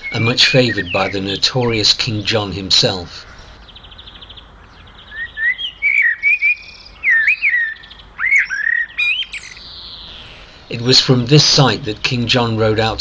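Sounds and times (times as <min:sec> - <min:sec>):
songbird trilling and whistling: 0:00.0 - 0:02.0, 0:03.2 - 0:11.0.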